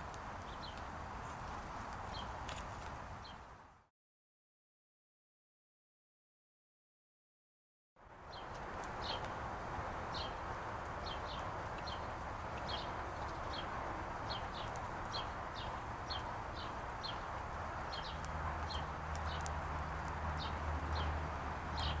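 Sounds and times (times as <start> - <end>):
songbird chirping: 0.0 - 3.6, 8.2 - 22.0.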